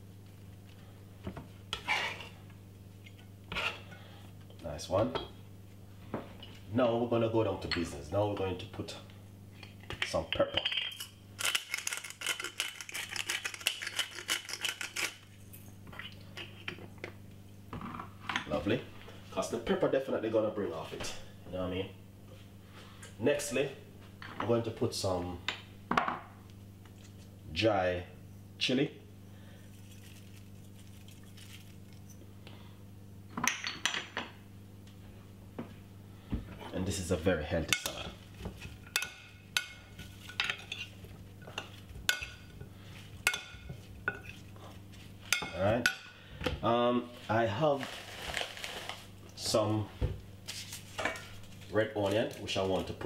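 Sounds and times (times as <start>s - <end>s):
chilli flakes shaken onto salad: 29.7s - 32.0s.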